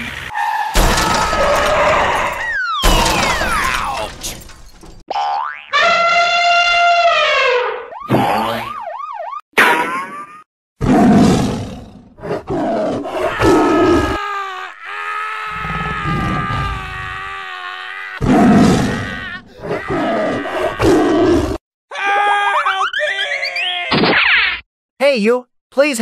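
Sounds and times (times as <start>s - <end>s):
dinosaur roars: 10.8s - 14.2s, 15.5s - 17.2s, 18.2s - 21.6s.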